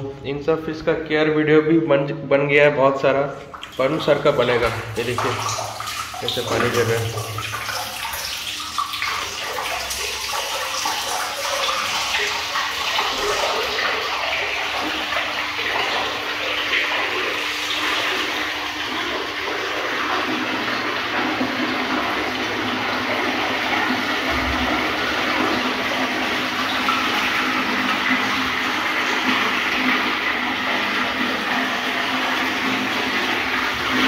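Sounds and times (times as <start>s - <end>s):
fountain water splashing into pond: 4.5s - 20.4s.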